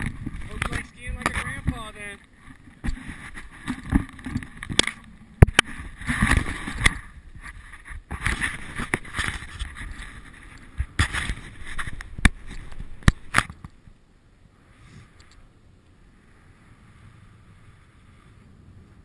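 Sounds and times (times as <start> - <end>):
wind on microphone: 0.0 - 13.6.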